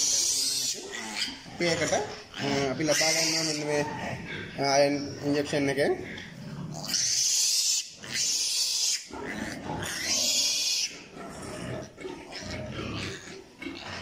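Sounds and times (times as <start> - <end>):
piglet squealing: 0.0 - 5.4, 6.7 - 11.1.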